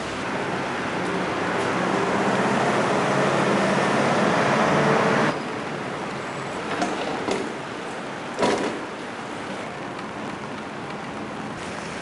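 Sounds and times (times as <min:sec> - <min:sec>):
wet-road traffic hiss: 0:11.6 - 0:12.0.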